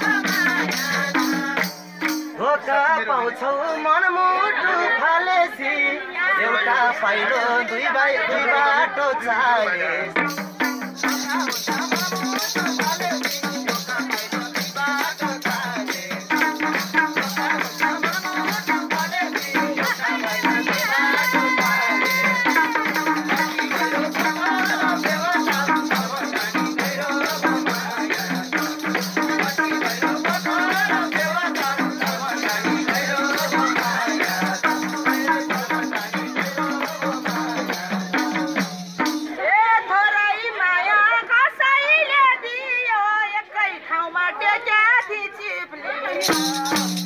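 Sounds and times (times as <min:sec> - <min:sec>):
hand drum fast rhythm: 0:00.0 - 0:02.4, 0:10.2 - 0:39.4, 0:46.2 - 0:47.0
people singing: 0:00.0 - 0:47.0.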